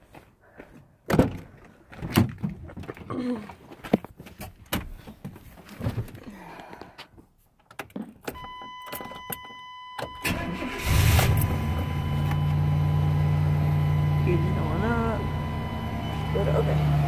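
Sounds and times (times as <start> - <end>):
thumps and rustling climbing in: 1.1 - 9.6
electronic warning tone: 8.4 - 17.0.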